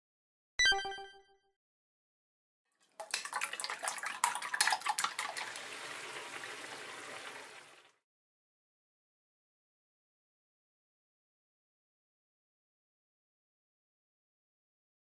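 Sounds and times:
meat sizzling in a frying pan: 5.4s - 7.9s.

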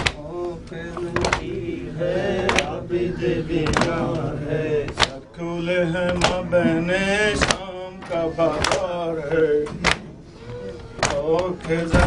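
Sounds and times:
men chanting a lament: 0.0s - 12.0s.

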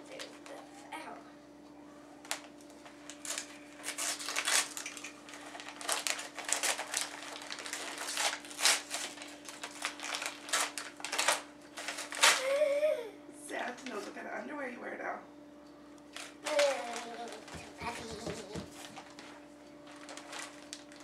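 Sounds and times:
paper tearing and crinkling: 2.3s - 12.5s, 16.1s - 21.0s.

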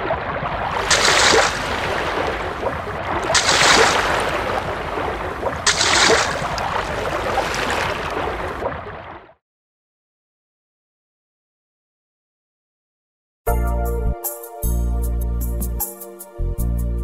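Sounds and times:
sea water washing and splashing: 0.0s - 9.4s.

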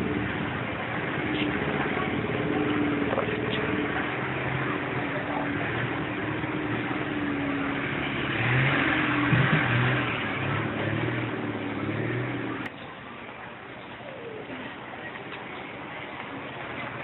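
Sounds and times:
motor engine running: 0.0s - 12.7s
outdoor market noise: 0.0s - 17.0s.

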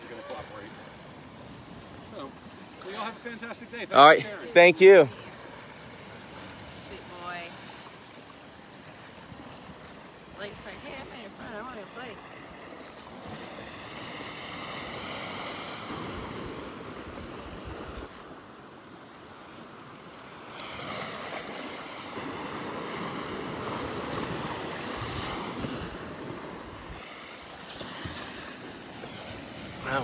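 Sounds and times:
surf breaking on beach: 0.0s - 30.0s.

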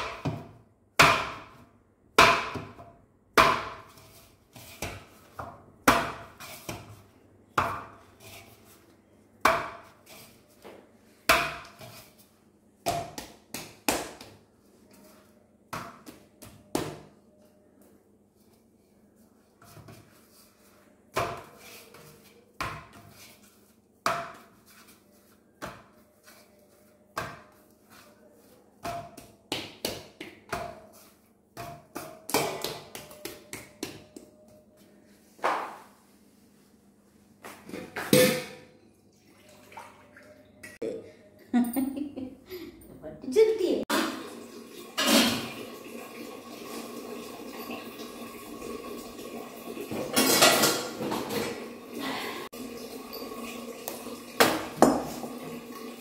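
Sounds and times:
dough kneaded and punched by hand: 0.0s - 36.2s.

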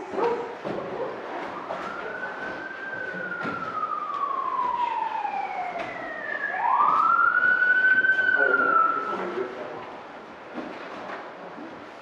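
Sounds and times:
emergency siren wailing: 0.8s - 9.8s.

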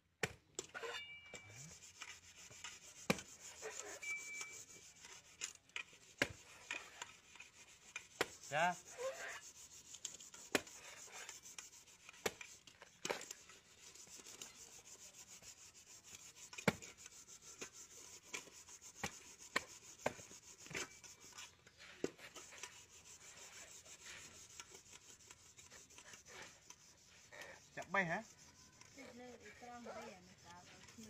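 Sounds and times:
scraping and rubbing husk: 0.6s - 31.0s
machete chopping coconut husk: 2.7s - 3.6s, 6.0s - 6.9s, 7.5s - 9.3s, 10.1s - 13.4s, 16.2s - 17.4s, 18.3s - 21.0s.

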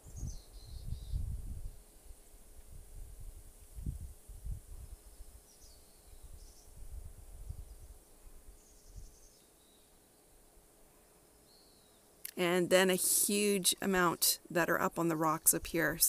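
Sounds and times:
wind buffeting microphone: 0.0s - 5.4s, 6.1s - 9.2s
faint steady hum: 0.0s - 16.0s
faint bird chirps: 0.1s - 1.8s.

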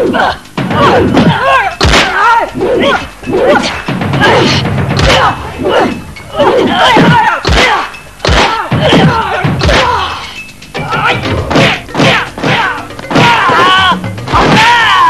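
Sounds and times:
background music: 0.0s - 15.0s
punch and kick whacks: 0.8s - 2.2s, 6.9s - 10.0s.

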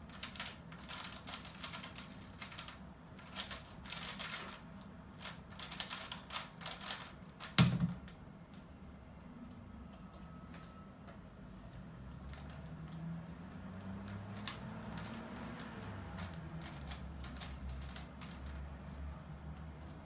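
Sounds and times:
puzzle cube plastic clicking: 0.1s - 4.6s, 5.2s - 7.6s.

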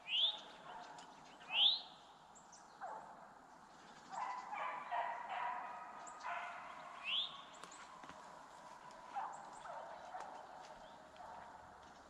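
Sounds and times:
hounds baying: 4.1s - 11.9s.

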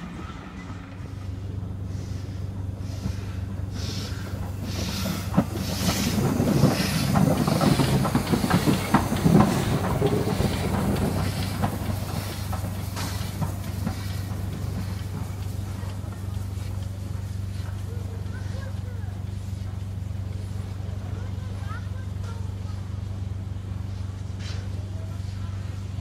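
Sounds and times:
steam locomotive exhaust and hissing: 0.0s - 26.0s
wheels clicking over rail joints: 3.8s - 22.5s.

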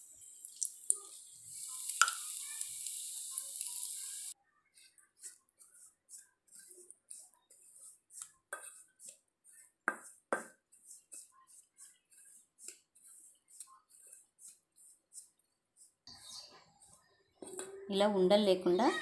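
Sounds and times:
spoon scraping in a bowl: 4.8s - 17.9s.

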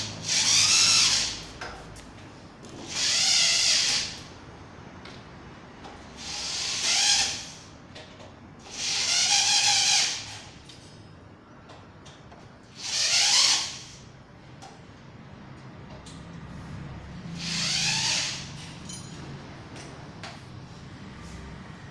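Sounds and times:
electric drill driving screws: 0.2s - 1.5s, 2.8s - 4.3s, 6.2s - 7.7s, 8.7s - 10.4s, 12.7s - 14.0s, 17.4s - 18.6s.

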